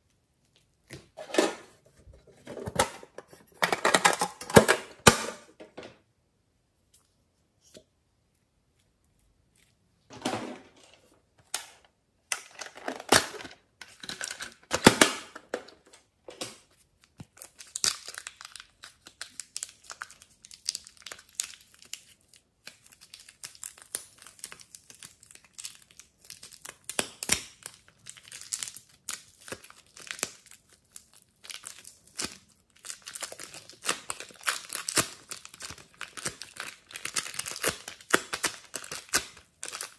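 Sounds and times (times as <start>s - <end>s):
plastic wrapper crinkling: 9.2s - 39.9s.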